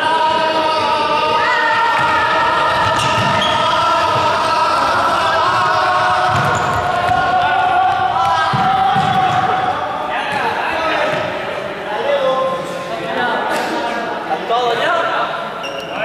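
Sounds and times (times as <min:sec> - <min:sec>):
voices holding long notes: 0:00.0 - 0:13.5.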